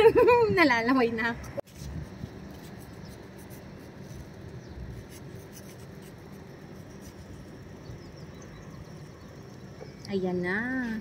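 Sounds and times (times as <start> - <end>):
low steady rumble: 0.0 - 11.0
faint scratching and rubbing: 1.3 - 7.9.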